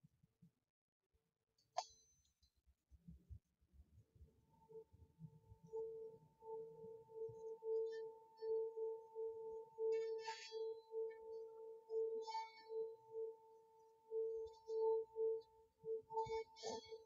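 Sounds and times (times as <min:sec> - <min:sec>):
pulsing ringing tone: 0:05.7 - 0:17.0.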